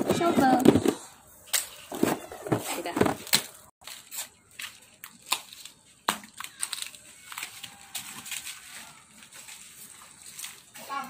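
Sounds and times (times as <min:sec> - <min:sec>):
charcoal and dry leaves crunching: 0:03.2 - 0:11.0.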